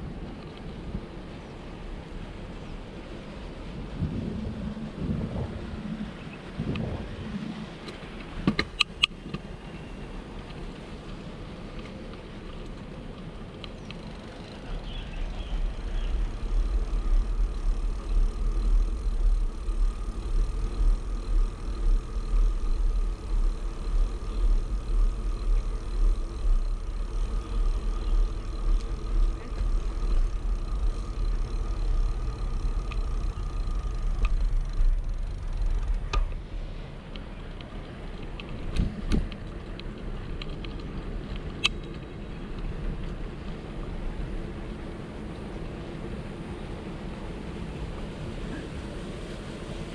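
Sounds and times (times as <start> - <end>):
wind buffeting microphone: 0.0 - 11.7.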